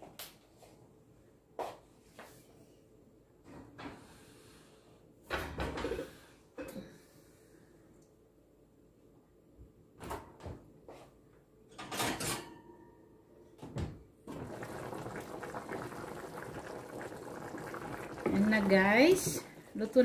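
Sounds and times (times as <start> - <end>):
kitchen knocks and clatters: 5.3 - 6.9, 11.7 - 12.8
soup bubbling in a pot: 14.3 - 20.0.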